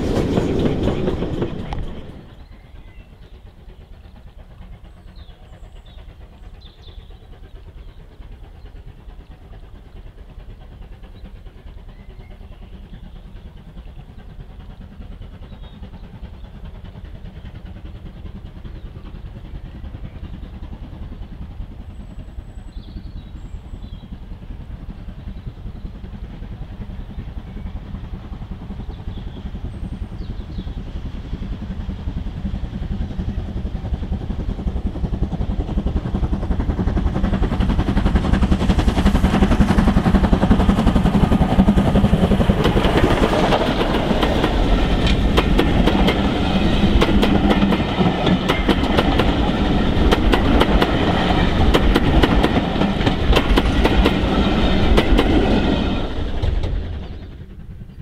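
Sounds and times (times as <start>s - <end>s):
distant steam locomotive rumble: 0.0s - 58.0s
steam locomotive passing close: 0.0s - 58.0s
bird chirps: 2.3s - 4.1s.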